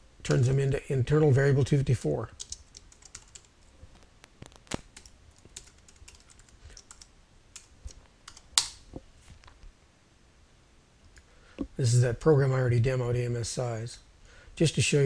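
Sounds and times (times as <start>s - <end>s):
keyboard typing: 2.4s - 3.7s, 4.4s - 8.8s.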